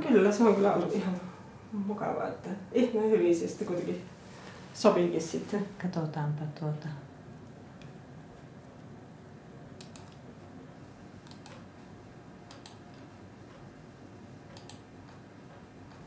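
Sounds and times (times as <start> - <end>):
faint room hum: 0.0 - 16.0
computer mouse clicks: 9.8 - 10.2, 11.2 - 11.7, 12.5 - 13.6, 14.5 - 16.0.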